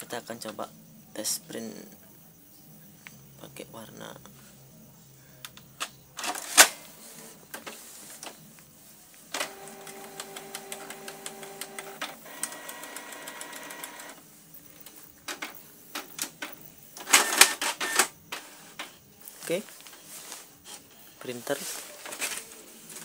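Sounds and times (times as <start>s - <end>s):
printer motor whine: 9.4s - 14.2s, 17.0s - 18.5s.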